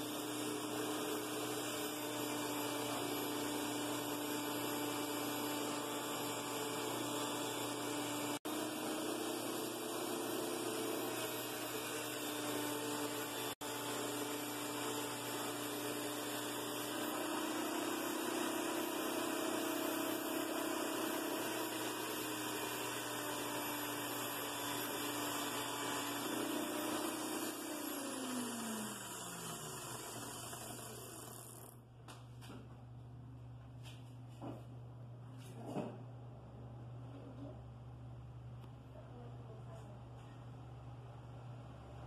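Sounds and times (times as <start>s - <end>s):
electric drill spinning: 0.0s - 31.8s.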